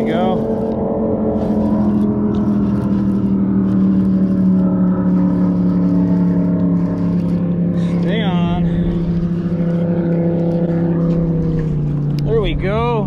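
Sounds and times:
fishing reel cranking ticks: 0.0 - 12.3
boat motor humming: 0.0 - 13.0.

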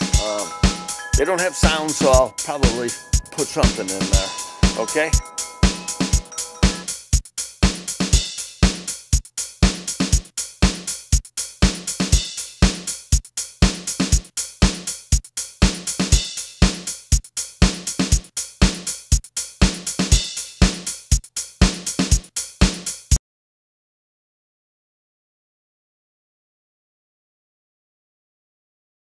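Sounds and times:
drum machine beat: 0.0 - 23.2.

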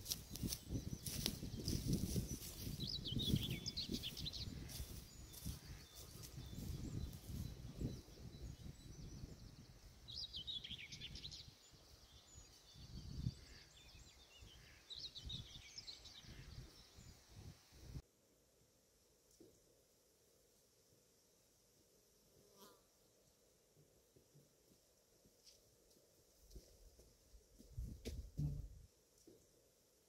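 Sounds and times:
footsteps crunching through dry leaves: 0.0 - 7.4
songbird singing: 0.0 - 17.7.

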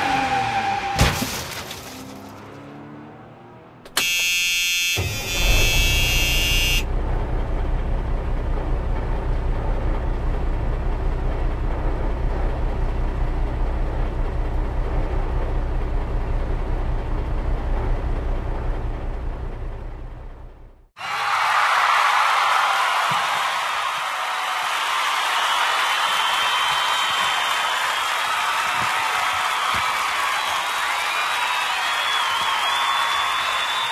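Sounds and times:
toy truck engine sound effect: 3.9 - 6.8
harsh high buzzing tone: 4.0 - 6.9.

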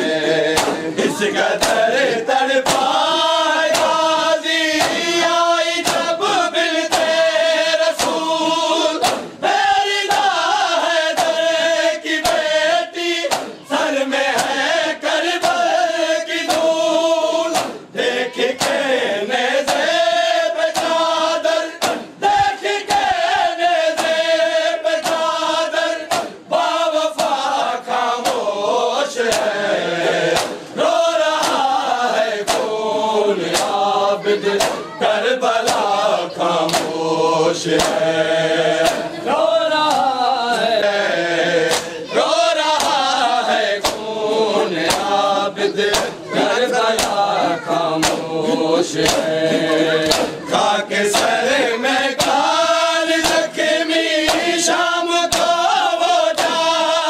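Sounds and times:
men chanting in unison: 0.0 - 57.0
hands slapping chests: 0.5 - 1.9, 2.6 - 3.0, 3.7 - 4.1, 4.8 - 5.1, 5.8 - 6.2, 6.9 - 7.2, 8.0 - 8.4, 9.0 - 9.4, 11.1 - 11.5, 13.2 - 13.7, 15.4 - 15.7, 16.4 - 16.8, 17.5 - 17.9, 18.6 - 18.8, 19.7 - 20.0, 20.7 - 21.0, 21.8 - 22.1, 23.9 - 24.2, 25.0 - 25.3, 26.1 - 26.5, 28.2 - 28.5, 29.3 - 29.6, 30.3 - 30.7, 31.3 - 31.8, 32.4 - 32.8, 33.5 - 33.9, 34.5 - 35.0, 35.6 - 36.0, 36.6 - 37.0, 37.7 - 38.1, 38.8 - 39.2, 39.8 - 40.7, 41.6 - 44.1, 44.8 - 48.3, 49.0 - 50.5, 51.1 - 51.4, 52.2 - 52.5, 53.1 - 53.5, 54.2 - 54.6, 55.3 - 55.6, 56.4 - 56.7.

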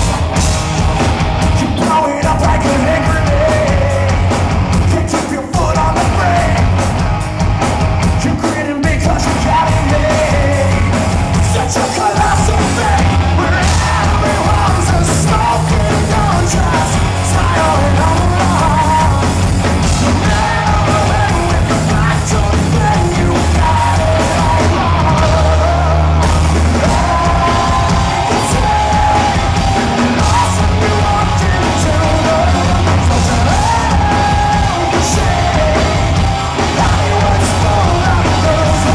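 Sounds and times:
bass guitar: 0.0 - 38.9
drums: 0.0 - 38.9
electric guitar: 0.0 - 38.9
man singing: 1.4 - 6.8, 8.0 - 38.9.

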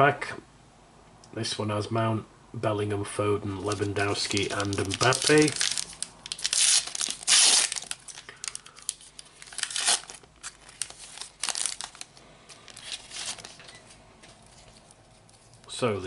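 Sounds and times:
wrapper crinkling: 3.6 - 15.7.

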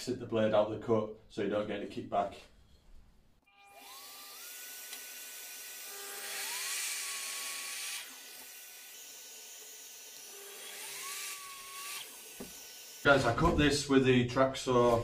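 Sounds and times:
mitre saw motor whining: 3.5 - 13.2
saw cutting through wood: 3.5 - 13.5.

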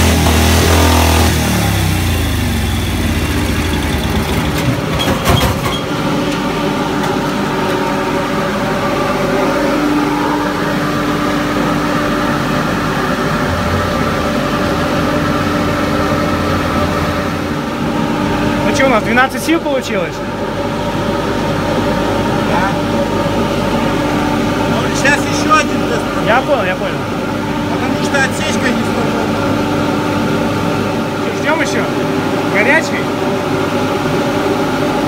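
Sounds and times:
motorcycle engine running: 0.0 - 18.7
steady whine: 5.6 - 35.0.

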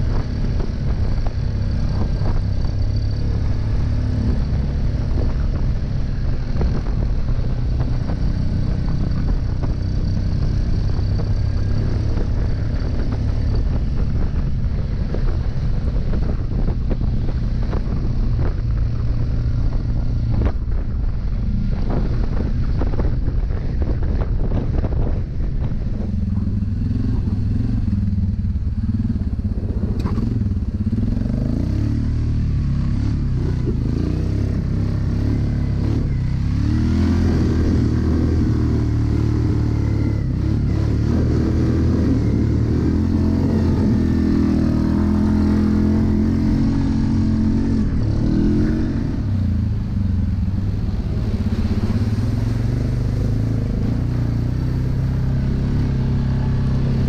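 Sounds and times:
atv engine revving: 0.0 - 7.0, 25.9 - 57.0.

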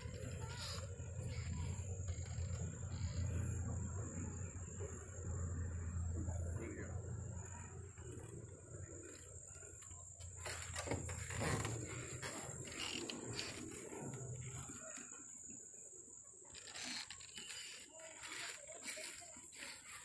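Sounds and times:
high-pitched insect drone: 0.0 - 8.2.

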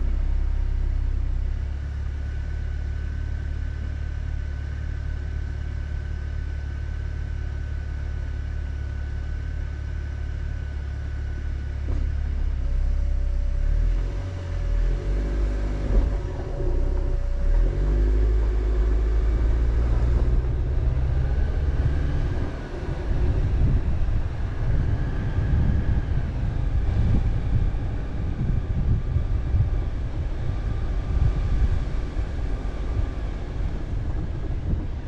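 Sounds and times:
vehicle rumbling on dirt road: 0.0 - 35.0.

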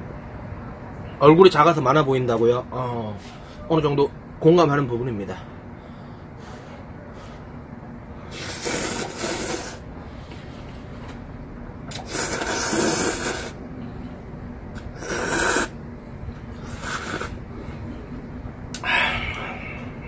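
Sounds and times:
man slurping noodles: 8.3 - 9.8, 11.9 - 13.6, 14.9 - 15.8, 16.7 - 17.4.

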